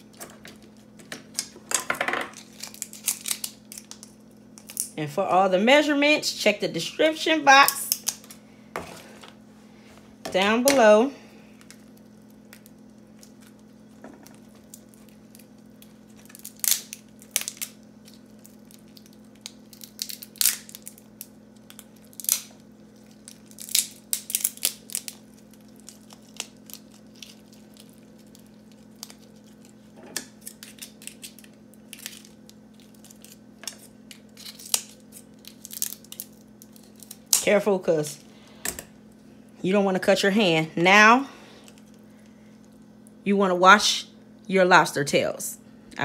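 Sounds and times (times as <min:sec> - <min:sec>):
shells cracking and crunching: 0:00.0 - 0:05.0, 0:07.7 - 0:08.4, 0:11.5 - 0:37.5
faint steady hum: 0:00.0 - 0:46.0.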